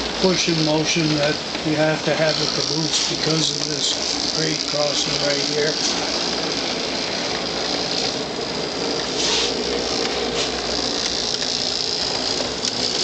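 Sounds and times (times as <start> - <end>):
model locomotive motor whirring: 0.0 - 13.0.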